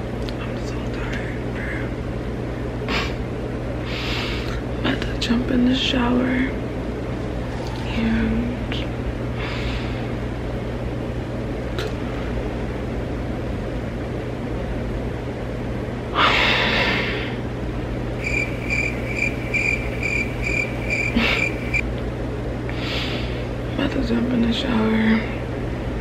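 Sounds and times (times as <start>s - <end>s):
steady low hum: 17.4s - 22.7s
high electronic beeping: 18.2s - 21.8s.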